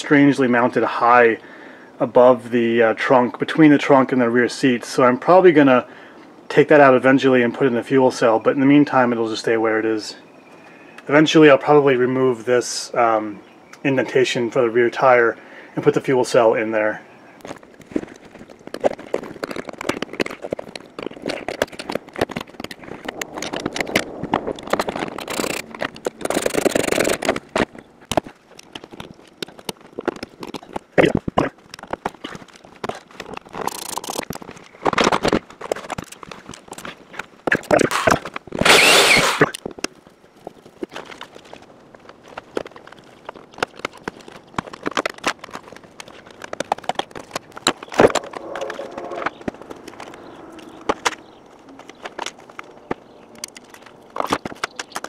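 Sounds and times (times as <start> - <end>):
plastic rattling and scraping: 17.4 - 55.0.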